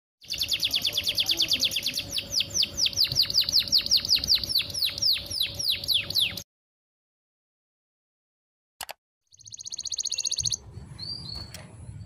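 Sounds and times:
canary singing a trill: 0.2s - 6.4s, 9.3s - 11.5s.

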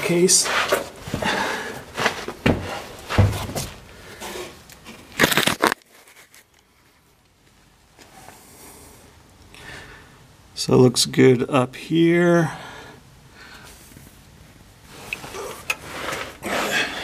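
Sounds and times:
scraping and rustling on concrete: 0.0s - 7.0s, 14.9s - 17.0s.

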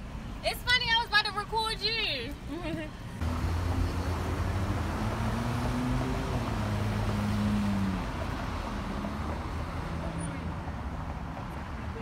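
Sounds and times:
cars driving past: 3.2s - 12.0s.

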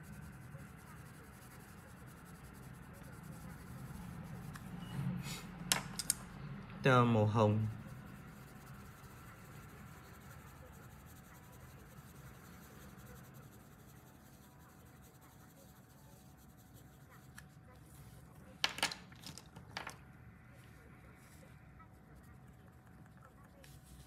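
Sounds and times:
pen scratching on paper: 0.0s - 4.8s, 7.7s - 18.4s, 20.7s - 24.0s.

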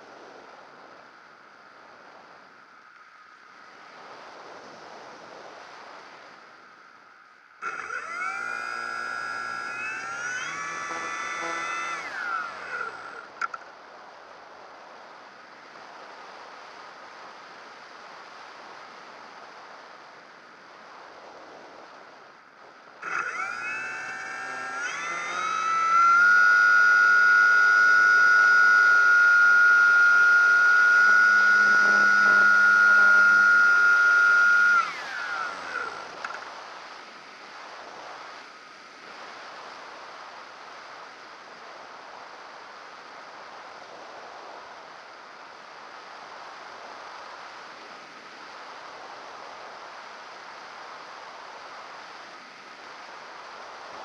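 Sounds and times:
model plane motor whine: 7.6s - 13.6s, 23.0s - 36.7s.

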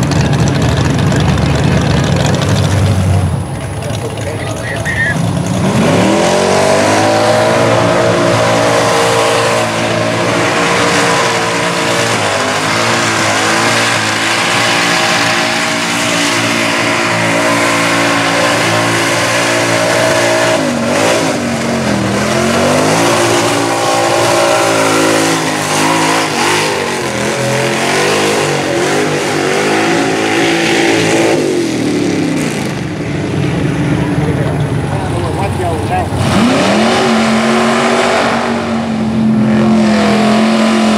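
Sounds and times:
tyres churning mud: 0.0s - 32.7s
truck engine revving: 0.0s - 40.9s.

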